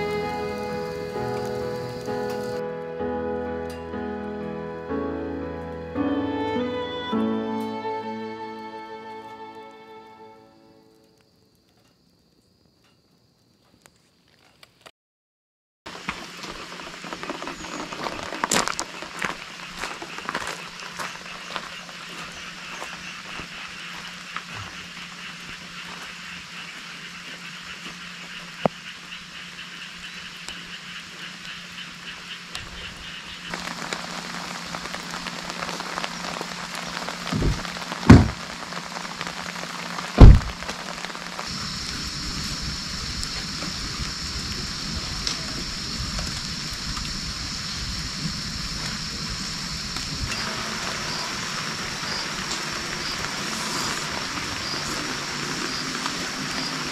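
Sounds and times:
steady rain: 0.0 - 3.0, 15.9 - 56.9
low thumps: 37.3 - 38.5, 40.2 - 40.7.

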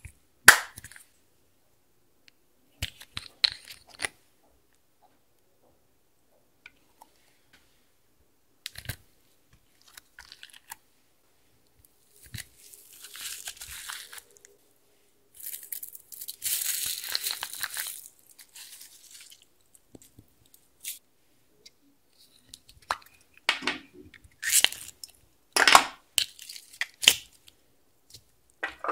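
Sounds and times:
crackling foam beads: 12.0 - 14.6, 15.3 - 21.0.

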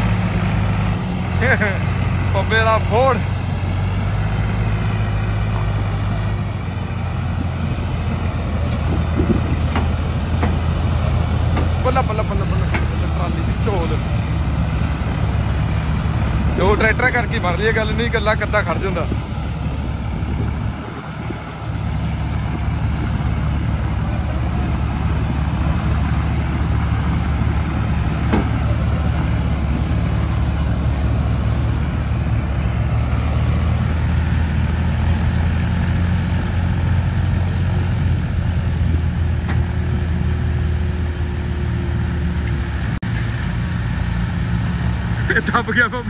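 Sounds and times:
tractor diesel engine under load: 0.0 - 46.0.

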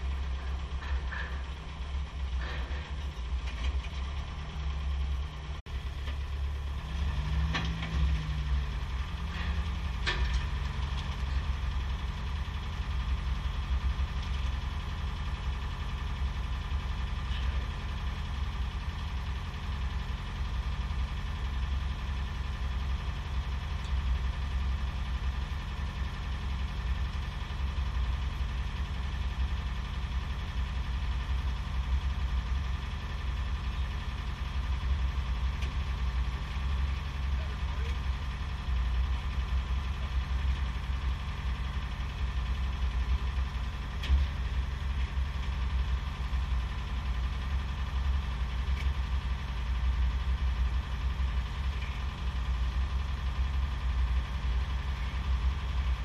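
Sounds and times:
heavy engine idling: 0.0 - 56.0.

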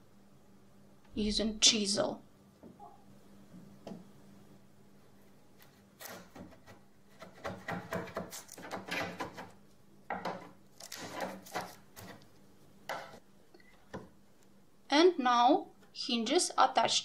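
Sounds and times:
chisel scraping wood: 5.6 - 9.5, 10.2 - 12.3.

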